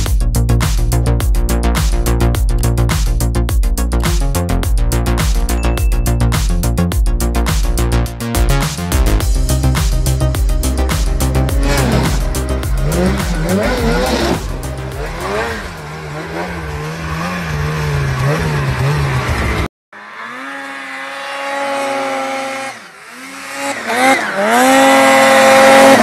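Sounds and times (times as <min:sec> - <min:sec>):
music: 0:00.0 - 0:16.0
snowmobile engine revving: 0:09.4 - 0:26.0.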